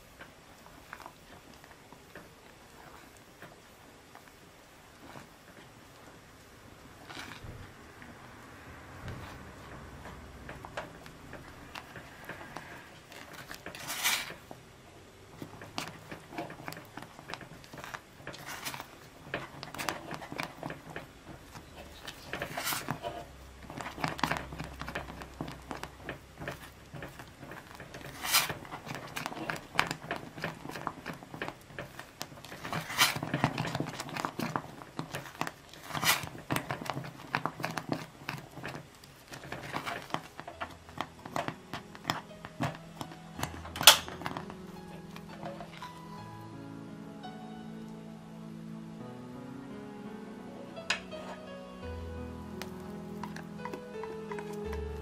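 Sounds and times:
spatula scraping a saucepan: 11.7 - 14.4, 15.7 - 42.7.

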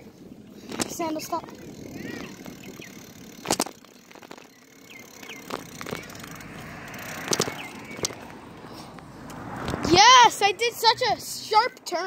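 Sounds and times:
bicycle knocks and rattles: 0.0 - 8.4
rushing tyres and wind: 0.0 - 12.0.

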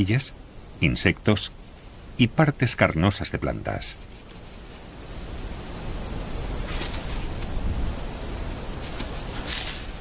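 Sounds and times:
crickets trilling: 0.0 - 10.0
soft hiss: 0.0 - 10.0.

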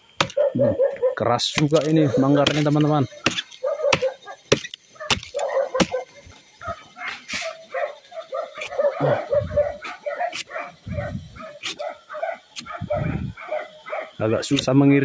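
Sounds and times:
machete chopping: 0.2 - 0.4, 1.5 - 6.1
dogs barking: 0.2 - 14.3.

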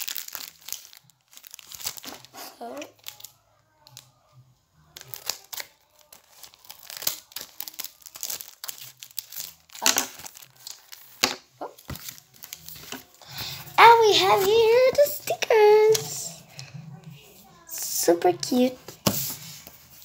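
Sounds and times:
plastic packet crinkling and tearing: 0.0 - 4.1, 5.0 - 16.3.

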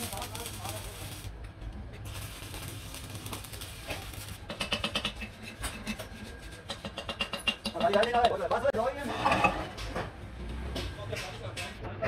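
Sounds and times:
welding arc crackling and hissing: 0.0 - 7.6.

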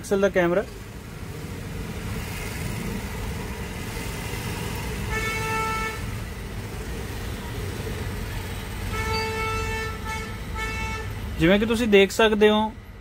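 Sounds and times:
street traffic rumble: 0.0 - 13.0
vehicle horn: 5.0 - 6.2, 8.9 - 11.3.

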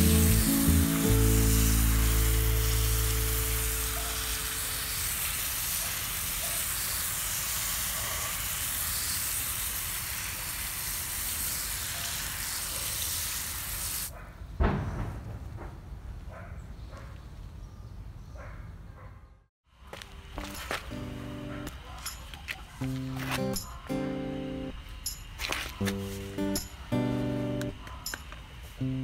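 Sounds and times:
held music notes: 0.0 - 5.0, 20.3 - 21.7, 22.8 - 24.8, 25.8 - 29.0
steady hiss: 0.0 - 14.1, 19.8 - 22.2, 22.8 - 29.0
sharp knock: 14.6 - 16.0.

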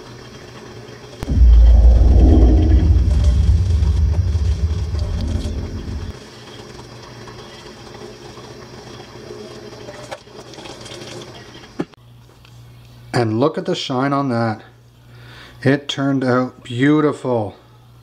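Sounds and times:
deep rumble: 1.2 - 6.1.

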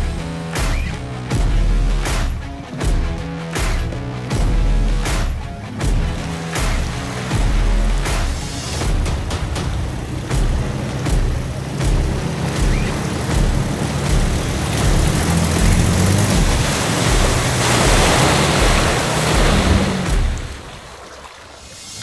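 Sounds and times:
off-road vehicle engine revving: 5.8 - 20.6
broad rushing noise: 5.9 - 22.0
vehicle knocks and jolts: 8.2 - 20.7.

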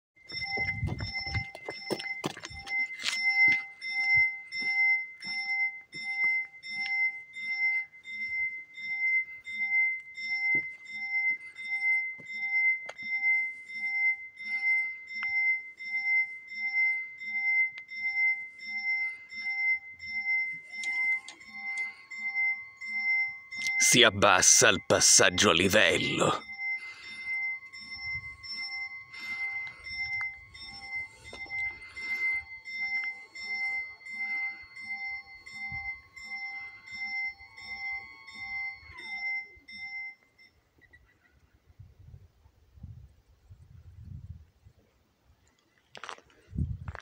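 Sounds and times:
level crossing warning bell: 0.2 - 40.8
barrier motor whine: 18.0 - 40.0.

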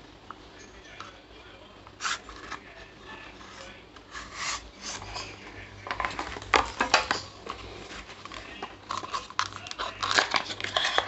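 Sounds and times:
cardboard packaging rustling: 4.0 - 11.0.

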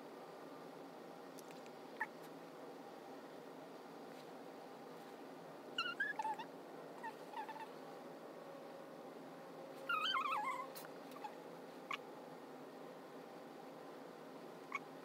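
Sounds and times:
small animal squeaking: 5.8 - 7.7, 9.9 - 12.1, 14.7 - 14.9.

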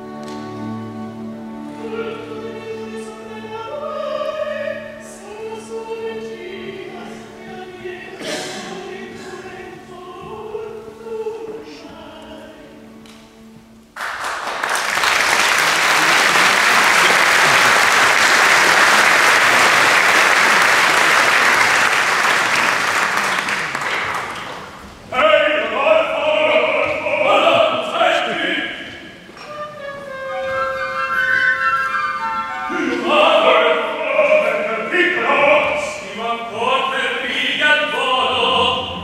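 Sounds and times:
voices or music: 0.0 - 23.3, 25.0 - 39.0
audience applause: 14.0 - 24.8.

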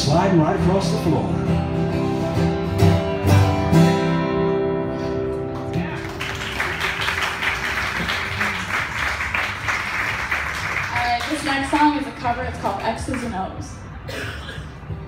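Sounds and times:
acoustic guitars strumming: 0.0 - 6.4
audience applauding: 5.5 - 11.7.

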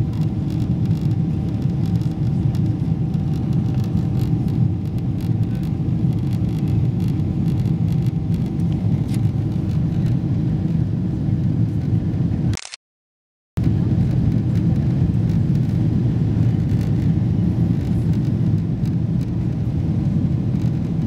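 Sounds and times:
faint steady whine: 0.0 - 12.5
jet airliner cabin roar: 0.0 - 12.6, 13.6 - 21.0.

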